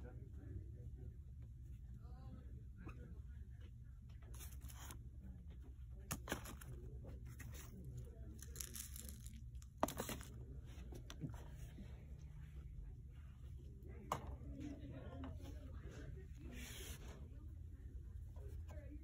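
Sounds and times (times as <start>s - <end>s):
steady low hum: 0.0s - 19.0s
crinkling and rustling: 5.6s - 12.0s.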